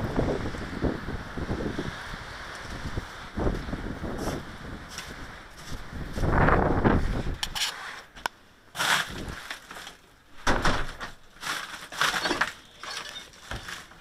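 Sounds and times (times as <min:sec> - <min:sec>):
rustling and crunching steps: 0:02.6 - 0:10.2, 0:10.8 - 0:14.0.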